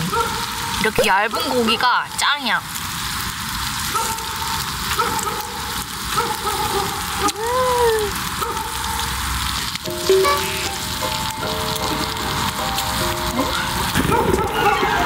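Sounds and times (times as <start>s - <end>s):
meat sizzling on a grill plate: 0.0s - 15.0s
person humming: 7.3s - 8.1s.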